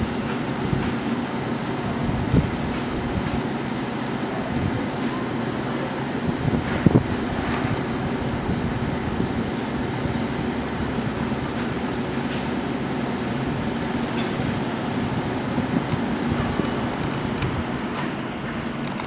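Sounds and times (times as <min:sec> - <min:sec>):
subway train rumble and hum: 0:00.0 - 0:19.0
clicks: 0:15.8 - 0:19.0.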